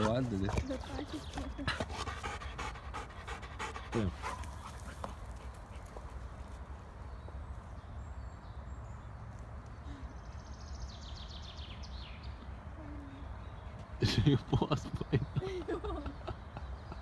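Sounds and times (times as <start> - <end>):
dog panting: 0.0 - 6.6.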